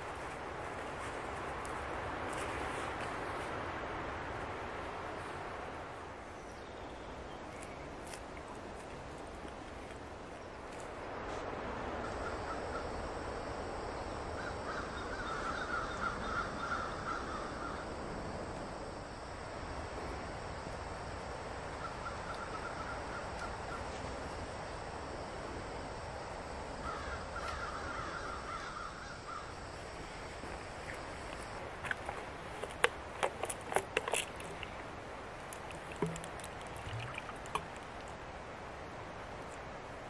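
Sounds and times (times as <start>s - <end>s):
steady background hiss: 0.0s - 40.0s
crow cawing: 14.4s - 18.0s, 26.8s - 29.6s.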